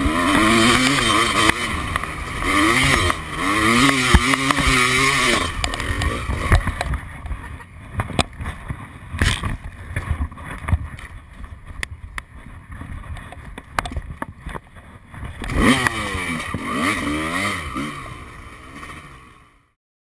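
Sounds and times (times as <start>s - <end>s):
motocross bike engine revving: 0.0s - 8.6s, 15.2s - 19.7s.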